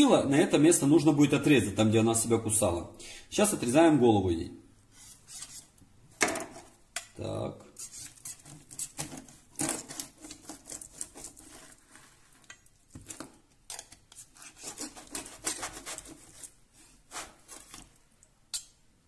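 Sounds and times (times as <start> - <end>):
knife scraping strokes: 4.9 - 5.8, 7.7 - 12.5, 13.7 - 18.0.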